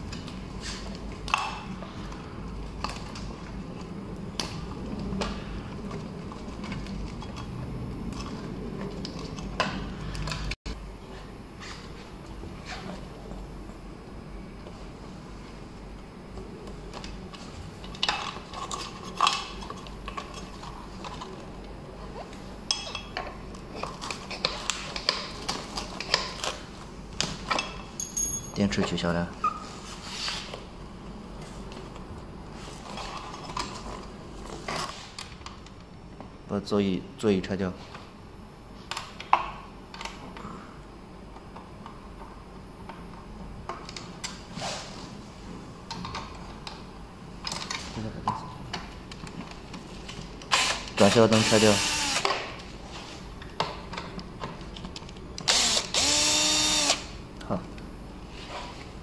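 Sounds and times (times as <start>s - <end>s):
parts clinking: 27.6s - 29.0s.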